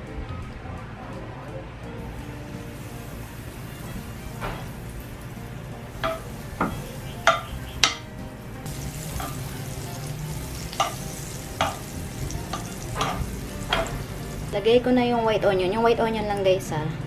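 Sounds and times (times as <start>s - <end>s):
butter sizzling in a frying pan: 2.2s - 8.0s, 8.6s - 14.7s
metal spoon scraping a pan: 10.6s - 14.2s.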